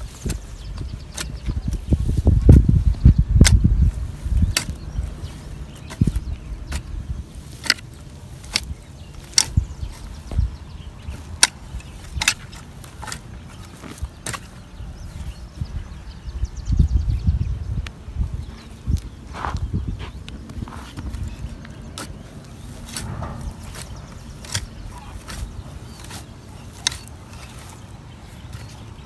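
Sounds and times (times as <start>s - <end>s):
tool striking clods and stones: 0.2s - 10.4s, 11.0s - 14.7s, 20.9s - 29.0s.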